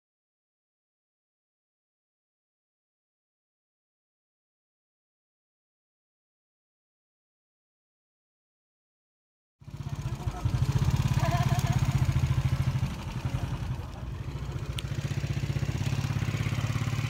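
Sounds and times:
small engine running: 9.6s - 17.0s.

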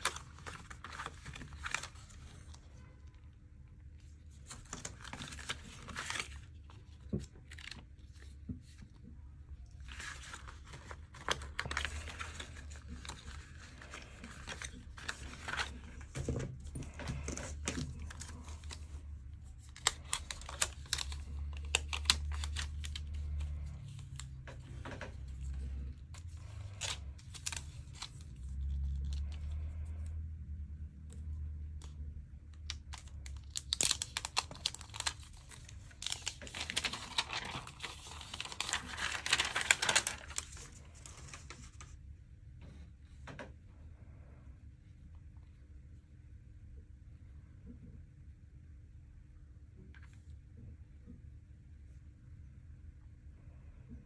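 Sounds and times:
packaging rustling and crinkling: 0.0s - 3.2s, 4.0s - 9.0s, 9.6s - 29.8s, 32.5s - 42.0s.

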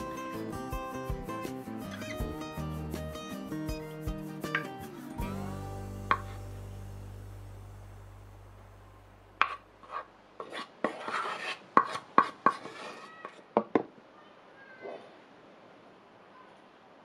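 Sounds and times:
scraping on glass dish: 9.4s - 13.4s.

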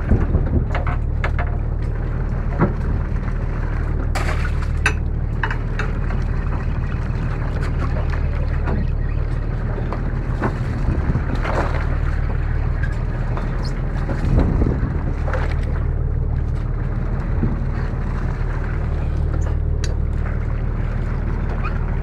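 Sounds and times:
wind on microphone: 0.0s - 1.1s, 9.7s - 16.0s
boat engine hum: 0.0s - 22.0s.

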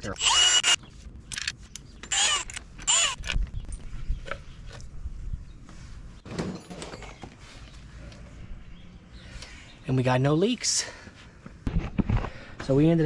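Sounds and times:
cordless drill running: 0.1s - 0.8s, 2.1s - 3.2s.

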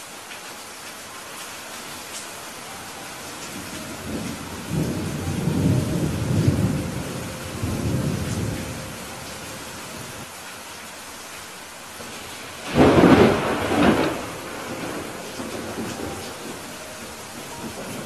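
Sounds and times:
steady rain hiss: 0.0s - 18.0s
thunder rumbling: 3.3s - 10.3s, 12.0s - 18.0s.

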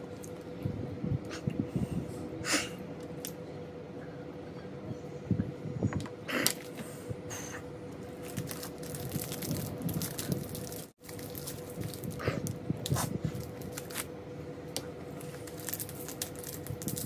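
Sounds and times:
faint steady hum: 0.0s - 17.0s
wrapper being torn open: 8.2s - 14.1s, 15.2s - 17.0s.

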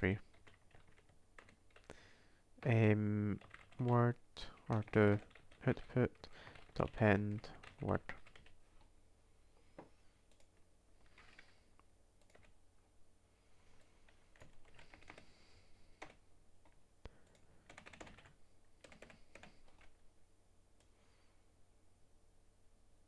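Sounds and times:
faint keyboard typing: 0.0s - 2.0s, 2.6s - 8.9s, 9.8s - 12.6s, 13.7s - 20.0s.

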